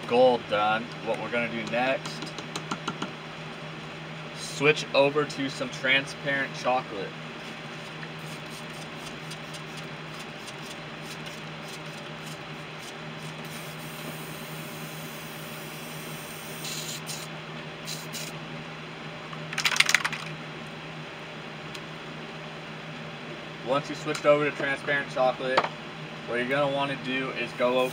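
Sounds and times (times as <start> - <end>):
steady low hum: 0.0 - 27.9
airbrush spraying hisses: 13.4 - 17.3, 17.9 - 18.3.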